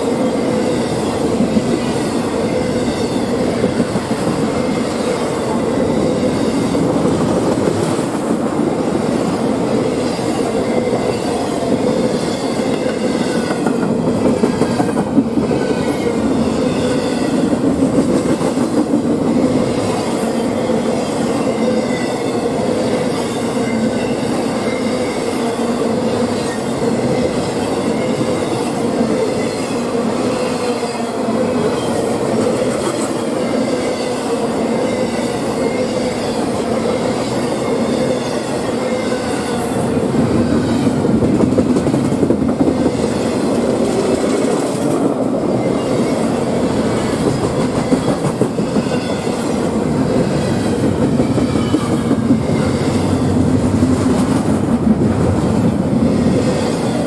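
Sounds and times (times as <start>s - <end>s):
freight train wheels clattering: 40.8s - 57.0s.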